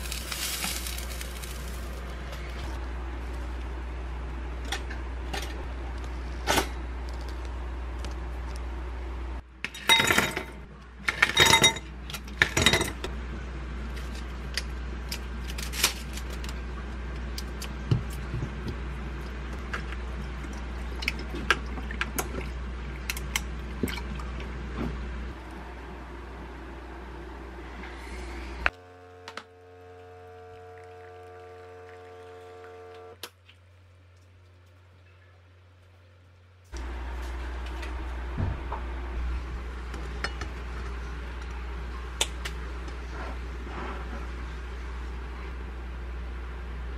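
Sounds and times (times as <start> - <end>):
milk pouring: 29.9 - 33.1.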